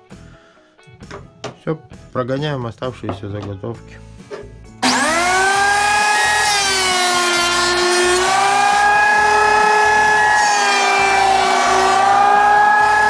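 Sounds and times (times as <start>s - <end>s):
thickness planer whining: 4.8s - 13.0s.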